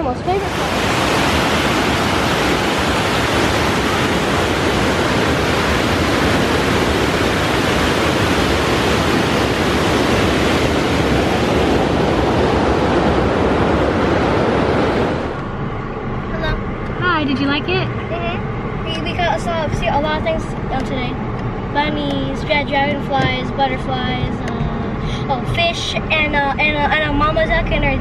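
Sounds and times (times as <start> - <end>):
water rushing over a weir: 0.1 - 15.4.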